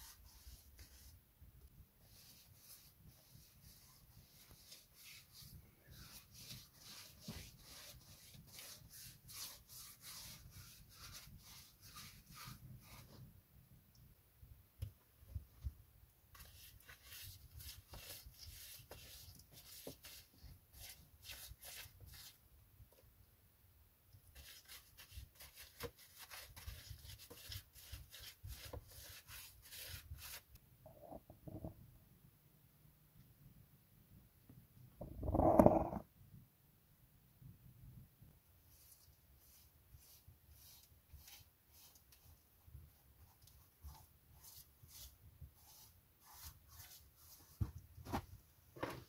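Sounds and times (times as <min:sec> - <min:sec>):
brush scrubbing a surface: 0:00.0 - 0:01.2, 0:02.0 - 0:13.3, 0:16.3 - 0:22.4, 0:24.3 - 0:30.5, 0:38.6 - 0:48.3.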